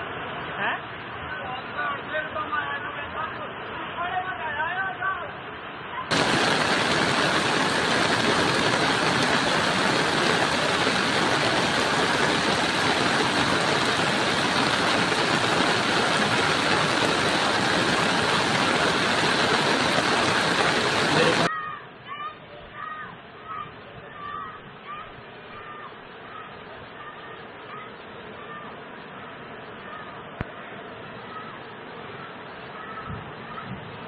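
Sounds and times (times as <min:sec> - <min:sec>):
floodwater rushing: 0:00.0 - 0:21.5.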